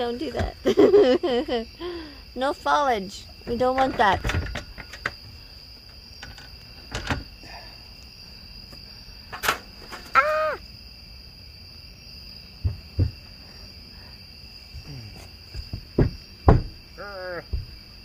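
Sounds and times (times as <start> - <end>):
night insects trilling: 0.0 - 18.0
man crying out: 10.1 - 10.6
dull thumps on van roof: 12.6 - 13.4, 15.1 - 17.9.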